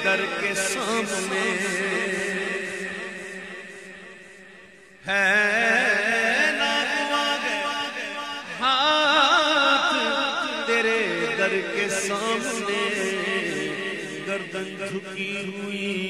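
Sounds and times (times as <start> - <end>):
man singing solo: 0.0 - 3.1.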